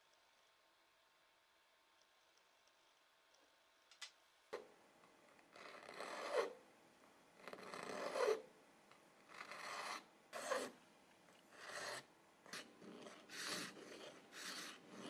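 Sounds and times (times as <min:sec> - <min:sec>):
metal file rasping on resin: 0:05.6 - 0:06.6, 0:07.4 - 0:08.4, 0:09.3 - 0:10.8, 0:11.5 - 0:15.0.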